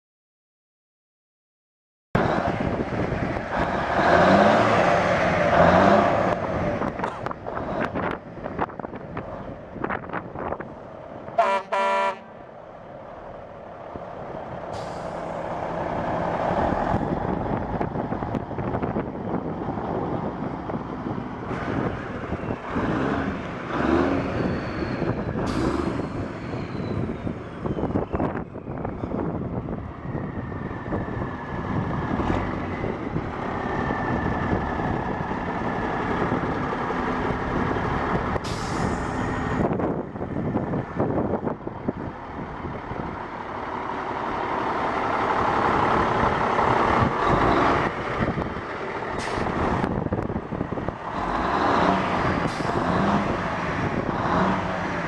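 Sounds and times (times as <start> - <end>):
diesel truck engine running: 2.2 - 55.0.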